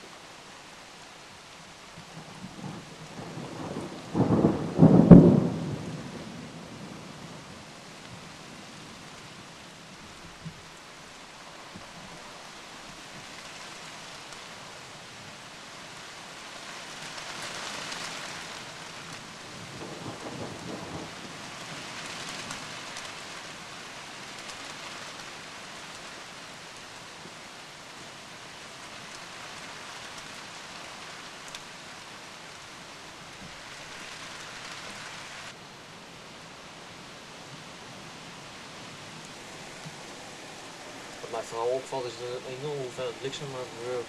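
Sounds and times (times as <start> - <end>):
heavy rain: 0.0 - 44.0
thunderclap: 3.2 - 7.0.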